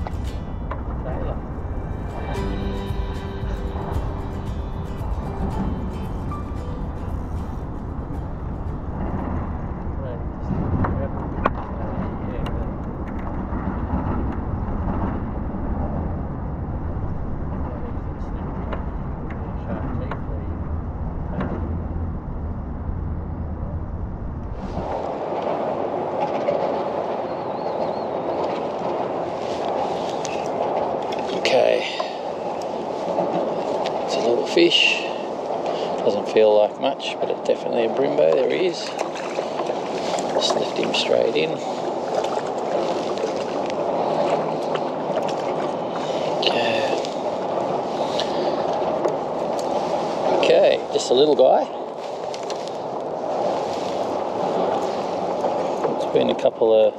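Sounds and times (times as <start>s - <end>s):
water washing around kayak: 0.0s - 20.8s, 24.5s - 56.9s
low rumble: 0.0s - 26.2s
traffic hum on bridge: 0.0s - 56.9s
small splashes: 38.8s - 50.3s.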